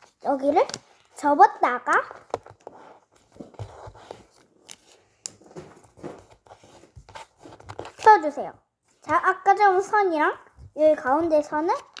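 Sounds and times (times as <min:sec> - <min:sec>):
paper rustling and crinkling: 0:02.2 - 0:08.2.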